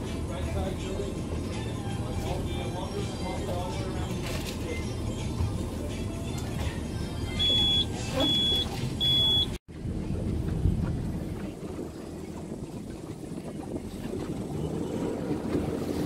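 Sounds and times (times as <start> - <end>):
boat engine idling: 0.0 - 16.0
high electronic alarm beeps: 7.4 - 9.6.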